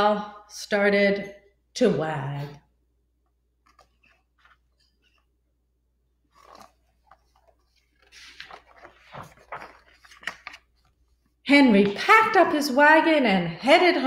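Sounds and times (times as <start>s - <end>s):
book pages turning: 3.5s - 12.4s.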